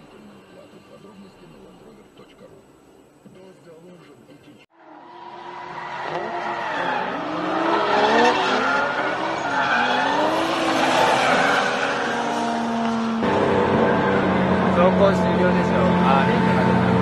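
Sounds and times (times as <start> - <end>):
car engine revving: 4.8 - 17.0.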